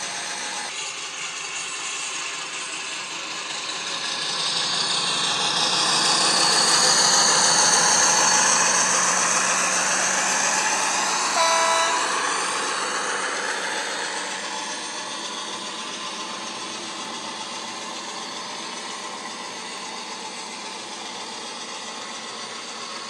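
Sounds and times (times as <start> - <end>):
diesel engine sound from speaker: 2.5 - 23.0
short horn note: 11.4 - 12.8.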